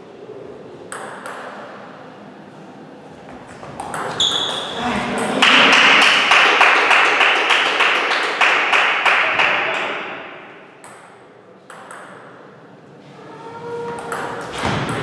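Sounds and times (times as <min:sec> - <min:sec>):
table tennis ball clicking: 0:14.0 - 0:15.0.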